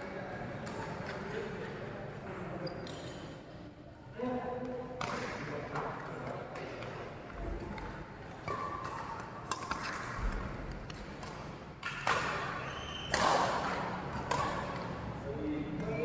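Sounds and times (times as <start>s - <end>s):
rackets hitting shuttlecock: 7.6s - 15.1s.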